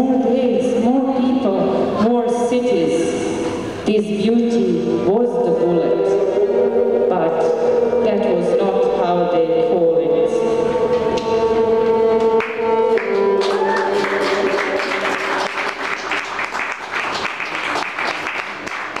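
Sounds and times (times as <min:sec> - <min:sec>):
violin held notes: 0:04.7 - 0:16.0
audience clapping: 0:12.3 - 0:19.0.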